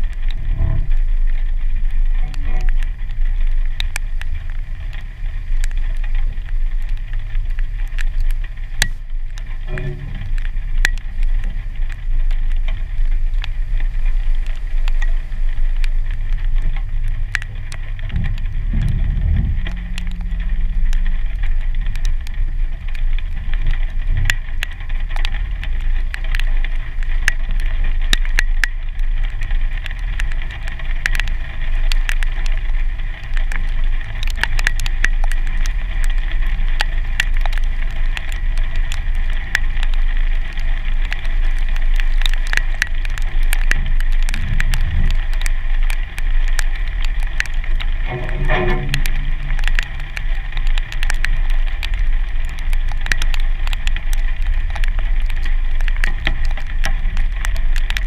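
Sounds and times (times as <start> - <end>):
raindrops ticking on glass: 0.0 - 58.0
car engine running: 15.3 - 24.6.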